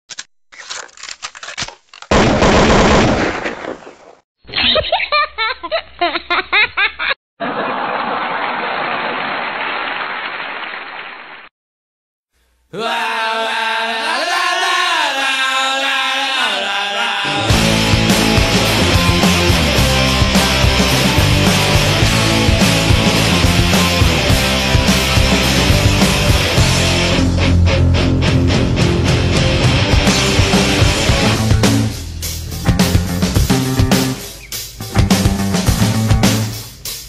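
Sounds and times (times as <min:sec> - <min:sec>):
sharp cracks: 0:00.1 - 0:04.2
broken voice-like sounds: 0:12.7 - 0:17.7.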